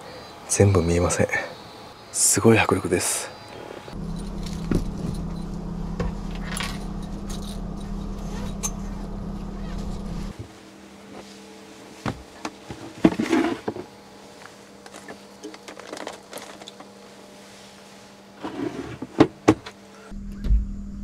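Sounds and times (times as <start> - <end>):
steady low hum: 0.0 - 21.0
can handling noise: 14.8 - 16.9.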